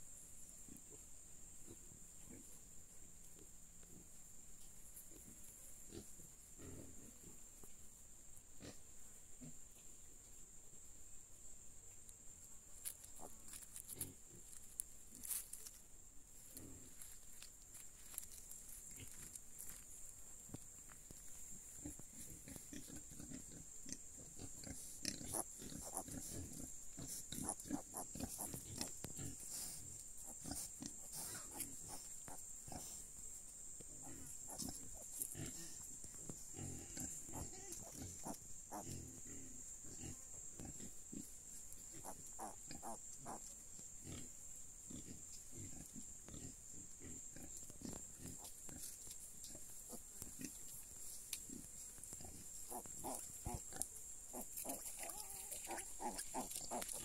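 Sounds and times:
pigs grunting: 21.8 - 33.0, 34.0 - 35.8, 36.5 - 41.3, 51.5 - 57.0.

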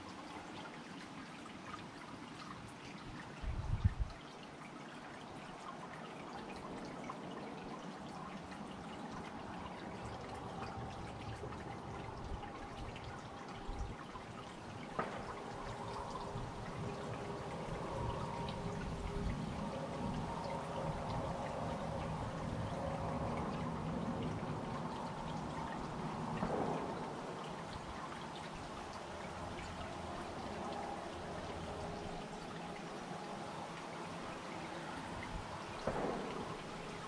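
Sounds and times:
fountain water trickling: 0.0 - 37.0.

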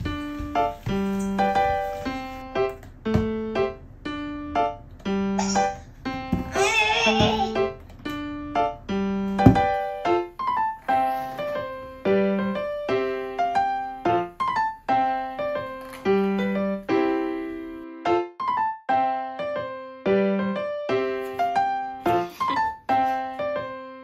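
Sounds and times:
gentle piano melody: 0.0 - 24.0
sharp thump: 9.4 - 9.8.

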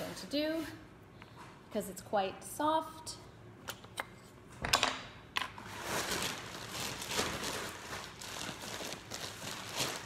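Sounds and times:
rustling and handling noise: 5.4 - 10.0.

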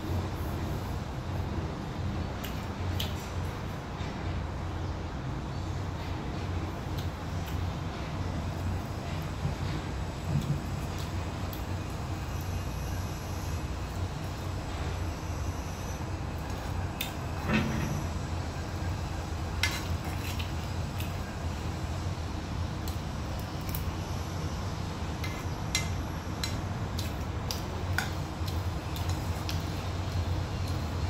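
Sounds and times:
metal spoon scraping frying pan: 19.6 - 20.5.

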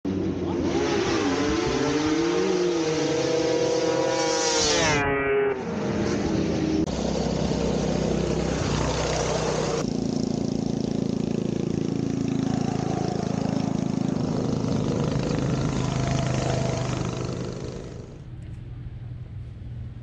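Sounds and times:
snowmobile engines running: 5.7 - 18.4.

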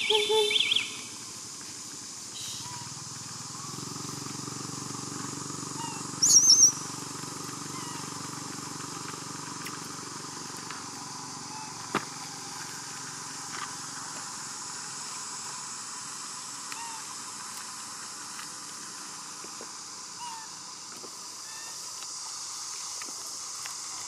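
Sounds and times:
monkey squealing: 0.0 - 0.7, 5.8 - 6.8, 7.6 - 8.2, 20.2 - 20.6
faint chirps: 0.0 - 1.3, 2.3 - 3.9, 5.7 - 7.0
background hiss: 0.0 - 24.0.

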